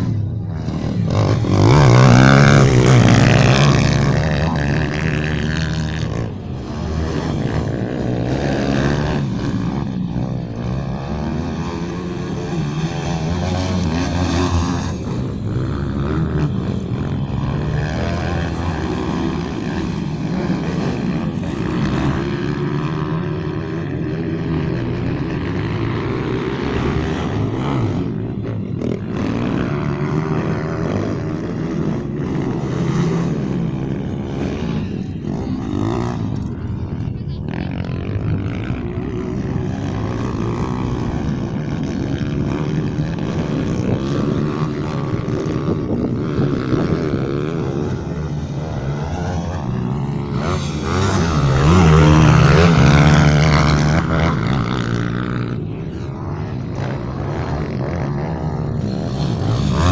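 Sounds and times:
pit bike engines revving: 0.0 - 59.9.

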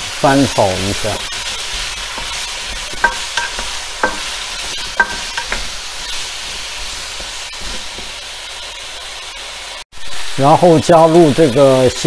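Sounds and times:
potatoes sizzling in hot oil: 0.0 - 12.0
spatula knocking against wok: 1.7 - 5.8.

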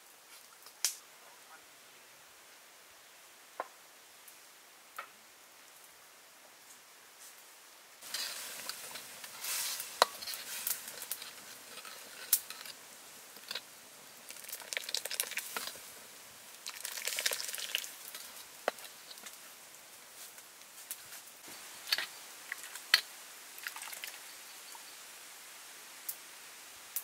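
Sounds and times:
ladle stirring sizzling sauce: 8.0 - 20.0, 21.4 - 24.2.

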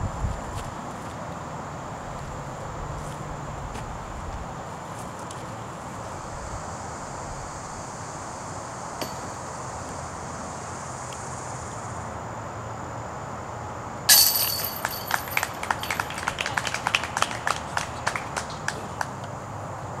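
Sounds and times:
disc hitting metal chains: 9.0 - 9.4, 14.1 - 15.9
chains jingling: 14.1 - 15.8.

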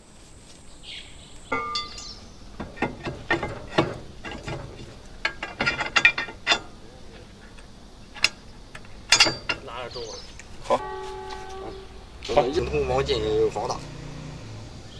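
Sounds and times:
metal parts clicking and clinking: 1.5 - 10.8.

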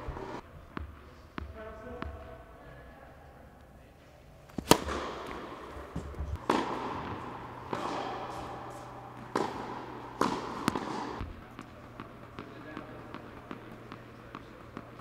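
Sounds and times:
tennis ball bouncing on court: 0.1 - 2.4, 4.5 - 15.0
tennis ball struck by racket: 4.5 - 15.0.

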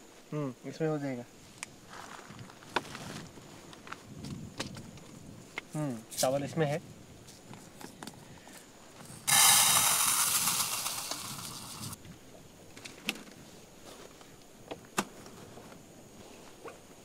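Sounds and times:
gas hissing from camping stove: 9.2 - 12.0.

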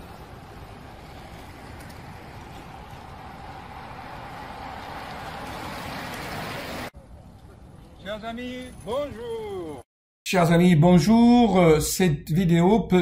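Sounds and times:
road traffic rushing: 0.0 - 9.8.

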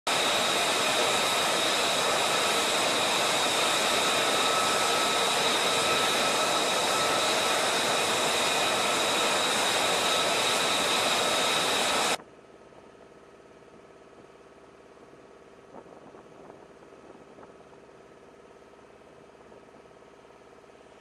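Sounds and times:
jet engine rushing with whine: 0.1 - 12.2.

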